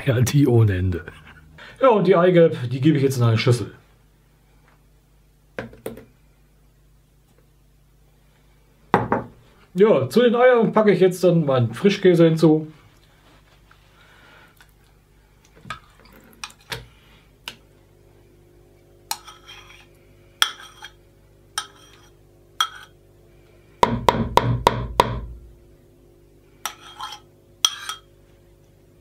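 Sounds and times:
spoon scraping a mug: 19.1 - 21.0, 21.6 - 22.9, 26.6 - 28.1.

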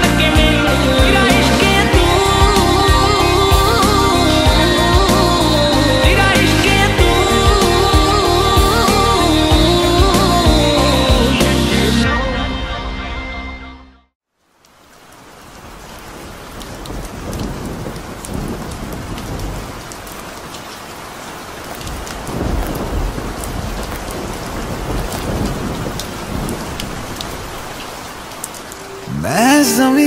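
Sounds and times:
steady rain falling: 0.0 - 11.6, 14.3 - 30.0
low thunder rumbles: 16.6 - 19.9, 21.9 - 27.7.

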